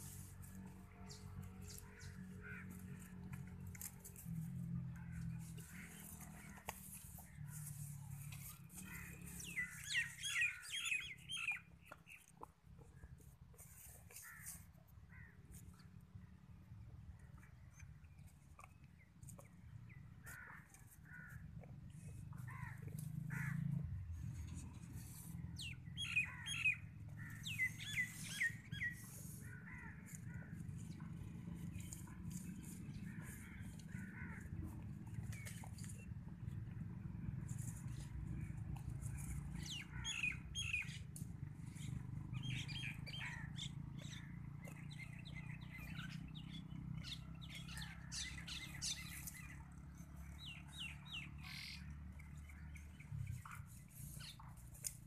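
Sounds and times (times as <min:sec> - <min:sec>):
rustles: 0:00.0 - 0:16.3, 0:17.8 - 0:55.0
small birds chirping: 0:03.8 - 0:16.4, 0:24.2 - 0:55.0.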